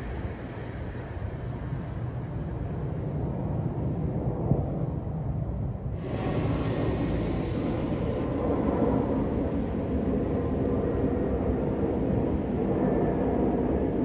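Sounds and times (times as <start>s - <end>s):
low city rumble: 0.0s - 14.0s
faint hiss: 6.0s - 10.1s.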